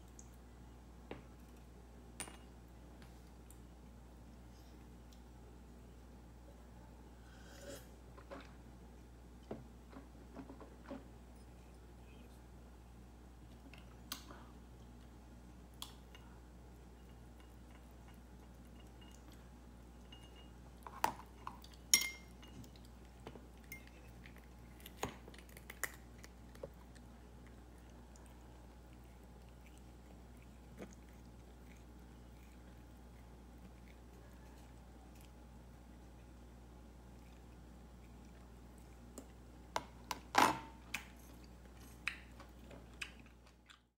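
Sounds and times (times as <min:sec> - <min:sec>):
faint low hum: 0:00.0 - 0:43.9
cat eating from a dish: 0:13.4 - 0:40.1.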